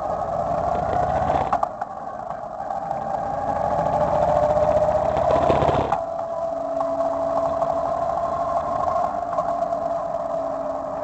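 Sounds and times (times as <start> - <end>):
motorcycle engine running: 3.6 - 6.1.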